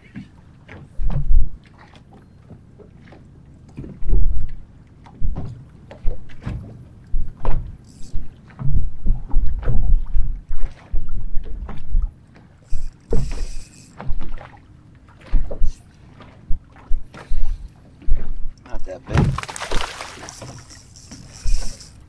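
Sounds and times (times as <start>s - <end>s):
waves slapping against boat hull: 0.0s - 22.0s
water splash hiss: 19.3s - 22.0s.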